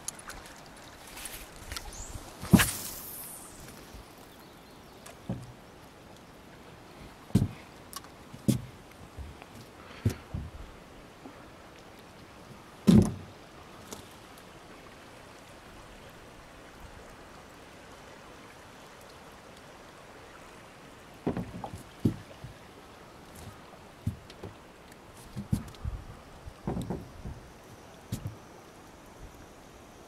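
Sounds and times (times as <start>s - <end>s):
faint wash of moving water: 0.0s - 30.0s
knocks in a boat: 5.3s - 5.6s, 7.3s - 7.6s, 10.0s - 10.6s, 12.9s - 13.3s, 21.2s - 22.6s, 25.4s - 25.8s, 26.6s - 27.5s.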